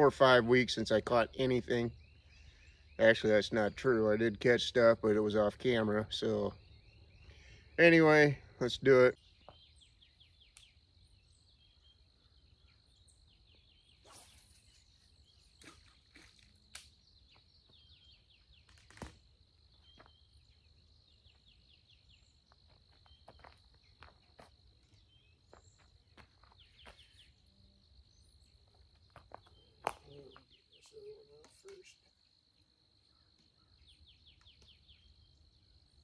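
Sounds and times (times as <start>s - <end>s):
faint bird chirps: 0.7s - 18.8s, 19.6s - 36.0s.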